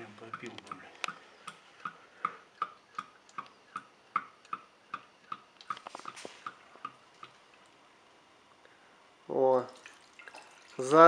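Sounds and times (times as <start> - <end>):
oil glugging from a plastic jug: 9.7 - 10.8.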